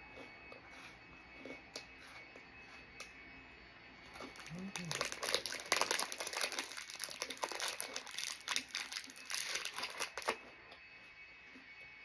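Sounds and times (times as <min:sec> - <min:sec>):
plastic wrapper crinkling: 0:04.4 - 0:10.4.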